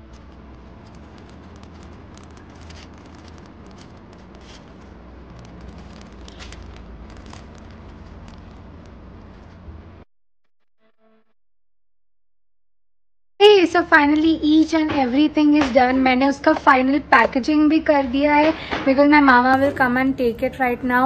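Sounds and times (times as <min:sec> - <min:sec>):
plastic packaging crinkling: 0:00.0 - 0:09.6.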